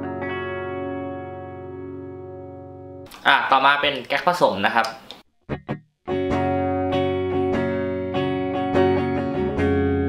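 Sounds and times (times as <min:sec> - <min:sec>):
electric guitar chords: 0:00.0 - 0:03.1, 0:05.5 - 0:10.0
electric guitar plucks: 0:00.0 - 0:03.1, 0:05.5 - 0:10.0.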